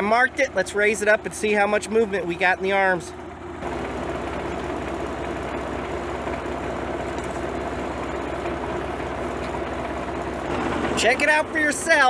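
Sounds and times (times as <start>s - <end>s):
tractor engine running: 0.0s - 12.0s
hydraulic hitch lifting: 3.5s - 12.0s.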